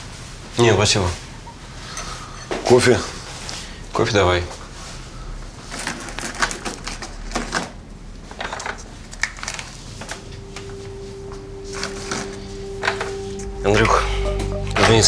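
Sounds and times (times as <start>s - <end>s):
steady low hum: 9.8s - 15.0s.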